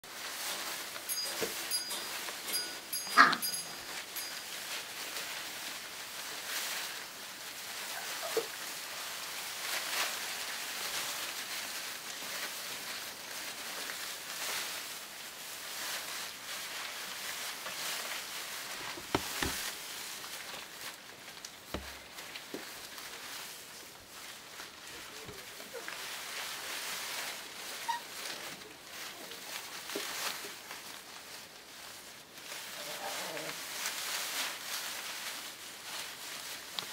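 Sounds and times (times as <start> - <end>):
shredded paper rustling: 0.1 - 36.9
puppy yelp: 3.0 - 4.4, 7.9 - 8.6, 27.7 - 28.2
puppy squeaks: 27.8 - 28.1.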